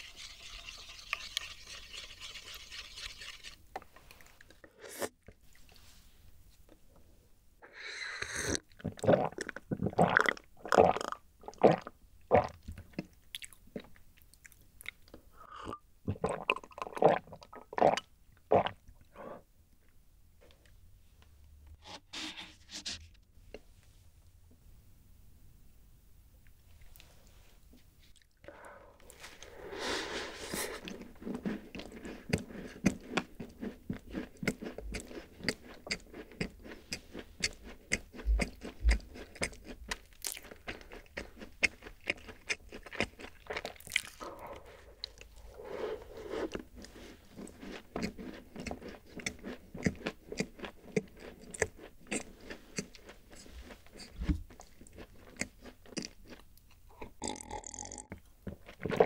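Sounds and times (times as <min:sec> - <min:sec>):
crisp cookie bitten and chewed: 0:30.5 - 0:45.6, 0:46.5 - 0:59.0.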